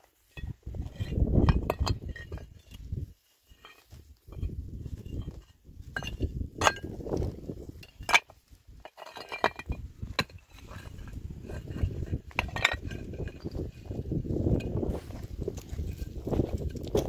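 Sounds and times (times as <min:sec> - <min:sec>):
low scuffling: 0:10.2 - 0:17.0.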